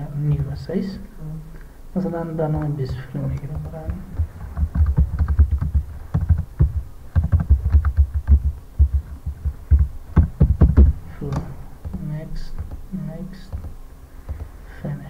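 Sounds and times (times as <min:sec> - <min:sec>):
typing on computer keyboard: 0:03.4 - 0:10.9.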